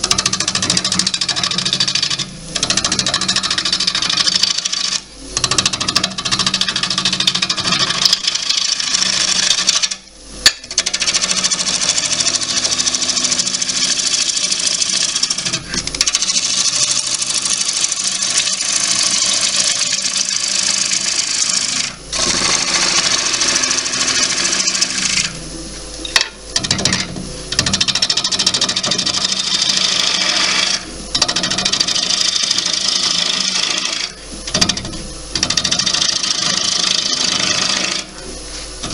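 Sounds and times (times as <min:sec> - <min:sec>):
lathe gouge scraping wood: 0:00.8 - 0:05.0, 0:06.1 - 0:10.0, 0:10.7 - 0:25.4, 0:28.7 - 0:34.8, 0:35.6 - 0:38.2.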